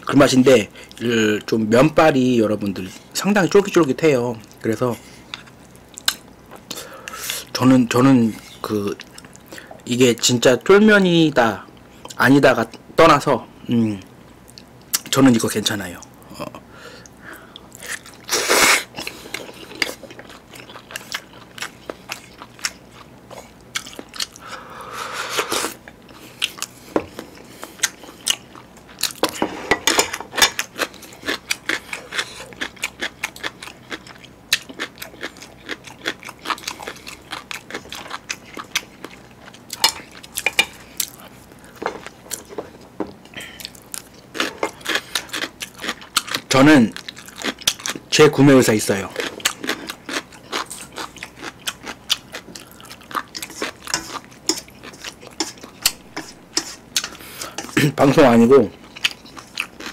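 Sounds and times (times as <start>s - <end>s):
wet chewing with mouth clicks: 58.7s - 59.9s.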